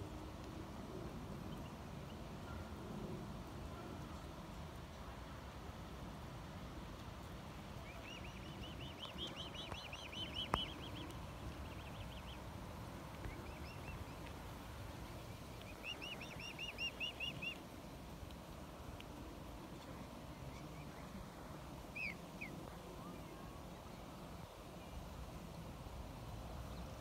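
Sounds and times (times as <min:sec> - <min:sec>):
swan cygnets peeping: 0:07.8 - 0:12.5, 0:13.1 - 0:14.3, 0:15.5 - 0:17.6, 0:21.9 - 0:22.5.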